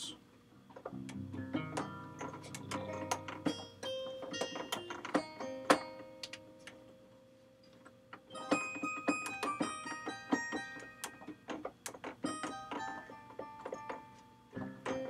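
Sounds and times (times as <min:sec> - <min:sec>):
sampled instrument notes: 0:00.8 - 0:06.8.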